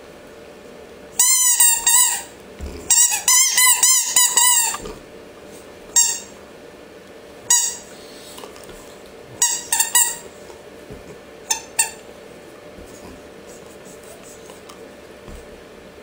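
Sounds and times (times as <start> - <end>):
squeaky toy squeaks: 1.2 - 2.3, 6.0 - 6.3, 7.5 - 7.8, 9.4 - 10.2
dog chewing toy: 1.7 - 5.0.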